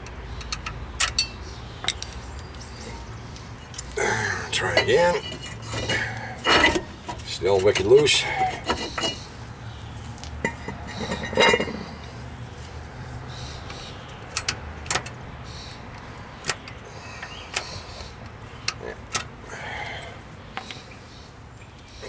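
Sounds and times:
metal clicks and clinks: 0.0s - 2.5s, 10.4s - 11.9s
metal scrape: 4.6s - 9.4s, 10.4s - 12.1s.

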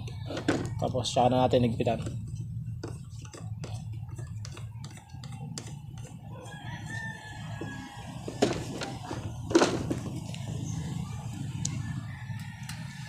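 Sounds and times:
rooster crowing: 6.2s - 9.3s, 11.6s - 13.0s.

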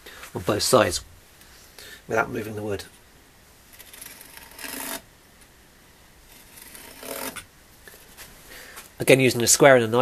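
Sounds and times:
knife scoring wood: 3.8s - 5.0s, 6.3s - 7.5s.

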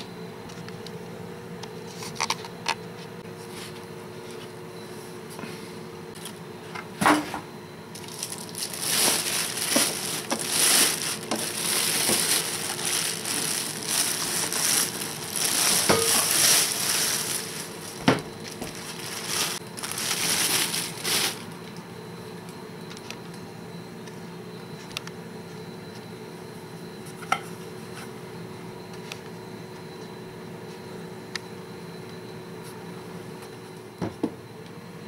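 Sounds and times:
packing material crinkling: 7.9s - 21.6s.

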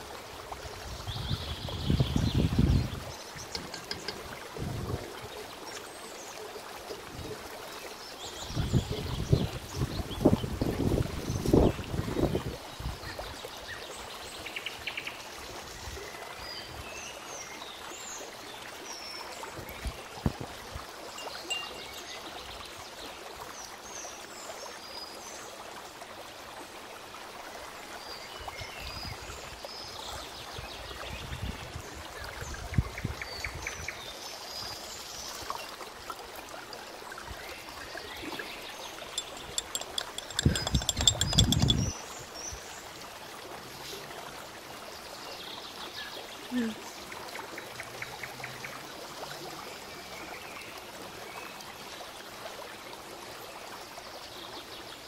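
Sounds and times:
water-like rush: 0.0s - 32.8s, 33.6s - 55.0s
songbirds chirping: 1.0s - 6.5s, 21.0s - 25.2s, 36.8s - 44.0s
spoon clinking in a glass: 3.4s - 4.2s, 21.2s - 22.2s, 39.0s - 42.0s.

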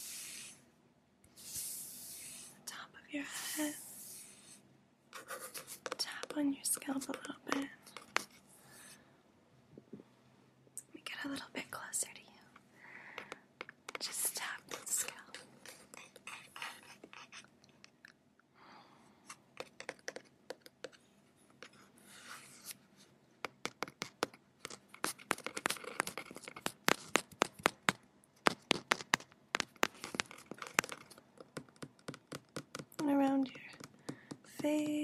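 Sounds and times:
fingertips scratching: 5.2s - 8.4s, 14.0s - 17.5s, 23.9s - 27.9s, 28.5s - 33.0s
fingertips tapping: 5.2s - 8.4s, 13.1s - 18.2s, 19.3s - 21.0s, 23.4s - 35.0s.

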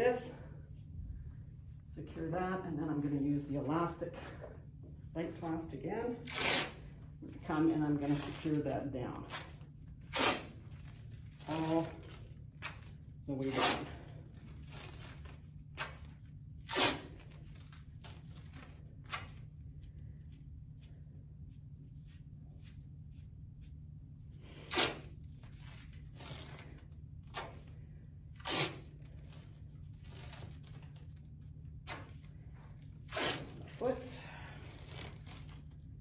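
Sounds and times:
adhesive tape ripping off roll: 6.2s - 6.8s, 9.3s - 19.5s, 24.5s - 32.3s, 33.0s - 33.9s, 34.6s - 35.8s.

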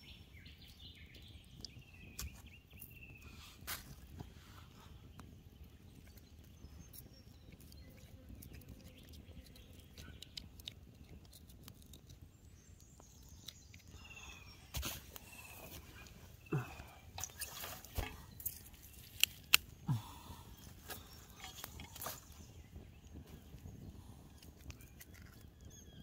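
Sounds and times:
campfire crackling: 5.0s - 25.4s.

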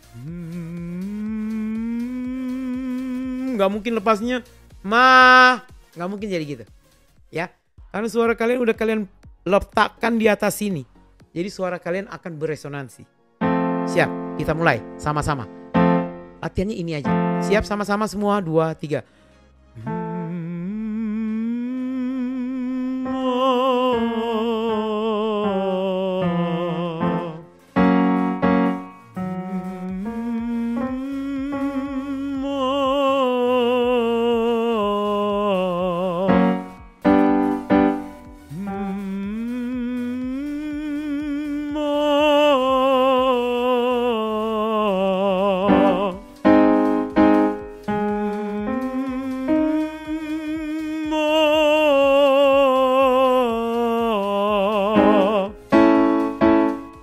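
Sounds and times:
man humming with vibrato: 0.0s - 3.6s, 19.8s - 27.5s, 28.7s - 56.8s
man singing ma notes: 0.0s - 5.7s, 13.8s - 16.1s, 19.8s - 57.0s
piano accompaniment: 13.4s - 18.2s, 19.8s - 20.6s, 22.9s - 40.1s, 41.9s - 57.0s.

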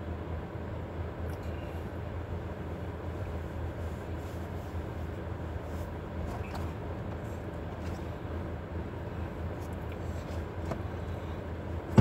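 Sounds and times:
faint clicks and rustles: 3.1s - 8.2s
car cabin rumble: 3.1s - 12.0s.

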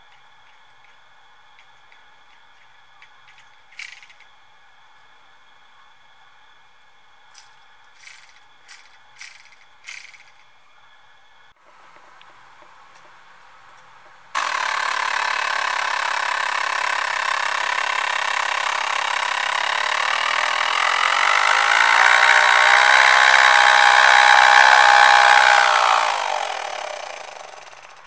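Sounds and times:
small air motor buzzing: 3.3s - 4.2s, 7.3s - 10.4s, 14.4s - 28.0s.

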